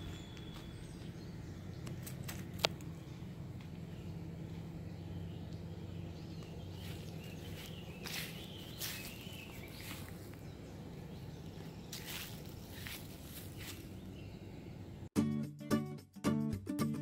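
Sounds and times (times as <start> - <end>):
bird chirps: 0.0 - 2.3, 3.0 - 14.8
low steady hum: 0.0 - 15.1.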